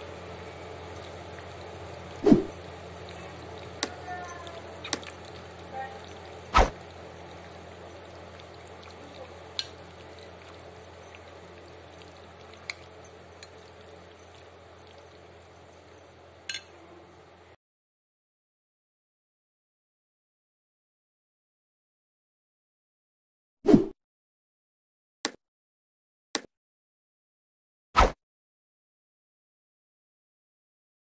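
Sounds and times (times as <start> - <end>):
spoon stirring food in a bowl: 1.0 - 15.8.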